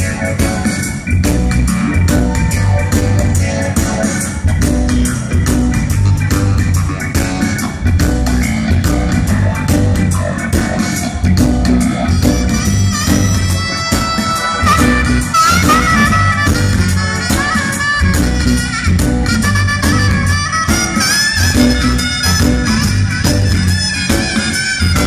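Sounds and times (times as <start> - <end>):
live reggae band playing: 0.0 - 25.0
saxophone solo: 12.1 - 25.0.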